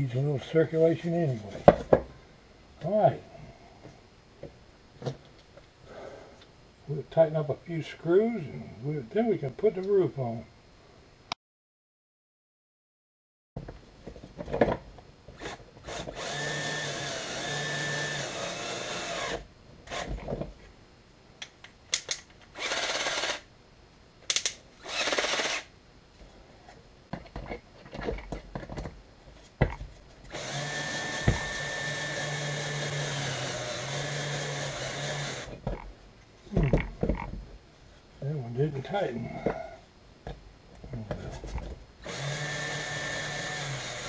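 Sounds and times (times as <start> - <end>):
power screwdriver motor: 15.4 - 20.1, 22.6 - 23.4, 24.8 - 25.7, 30.3 - 35.5, 42.0 - 44.0.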